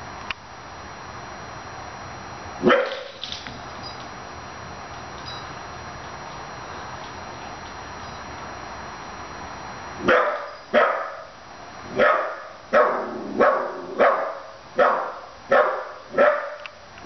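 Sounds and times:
puppy barking: 2.6 - 3.1, 10.0 - 11.3, 12.0 - 16.7.

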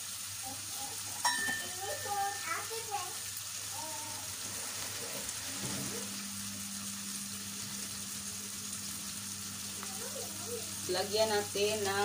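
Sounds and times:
sauce sizzling in a frying pan: 0.0 - 12.0
low steady hum: 3.8 - 12.0.

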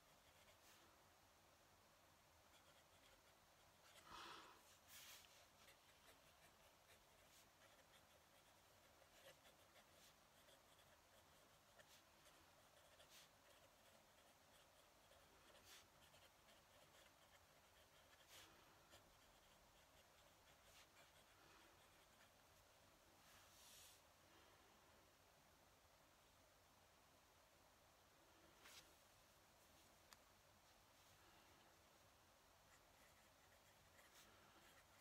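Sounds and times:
pen nib scratching paper: 0.0 - 0.8, 2.5 - 4.2, 4.8 - 22.4, 32.7 - 35.0.

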